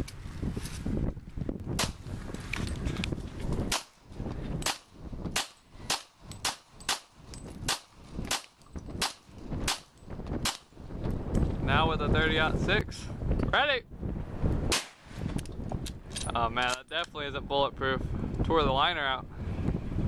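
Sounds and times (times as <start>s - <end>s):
handgun shots: 4.6s - 10.7s, 14.7s - 15.0s.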